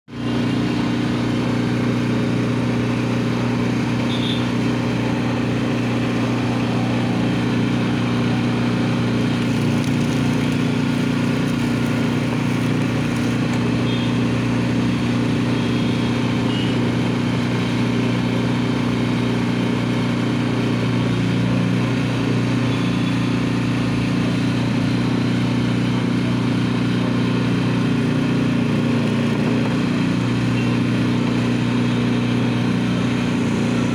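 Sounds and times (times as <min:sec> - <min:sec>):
juice crusher motor humming: 0:00.2 - 0:23.1.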